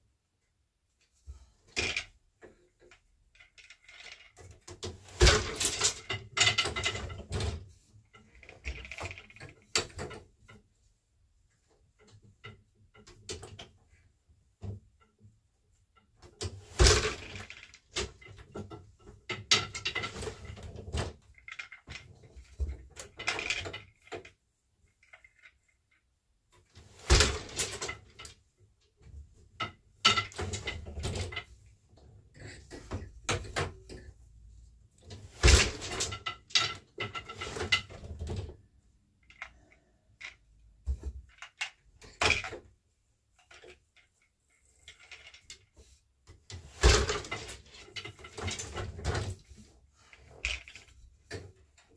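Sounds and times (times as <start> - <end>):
loom parts and shuttle clatter: 1.0 - 10.6, 14.6 - 38.6, 39.2 - 51.9
sharp wooden loom knocks: 5.1 - 7.5, 16.6 - 18.2, 27.0 - 27.9, 35.3 - 38.0, 46.7 - 49.0.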